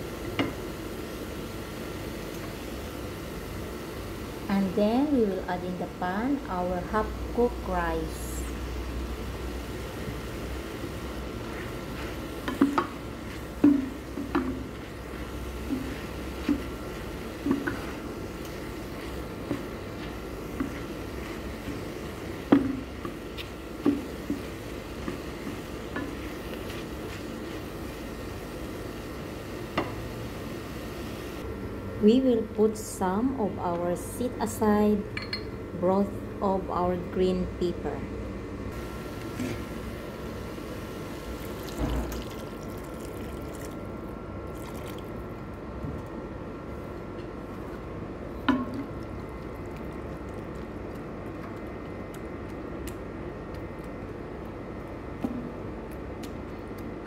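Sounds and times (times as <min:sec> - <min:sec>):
spatula knocking and scraping pan: 0:11.5 - 0:27.3
liquid pouring and splashing: 0:41.3 - 0:45.5.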